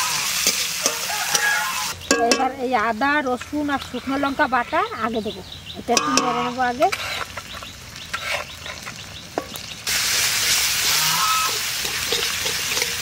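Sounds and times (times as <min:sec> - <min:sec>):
loud sizzle in oil: 0:00.0 - 0:05.2, 0:05.8 - 0:13.0.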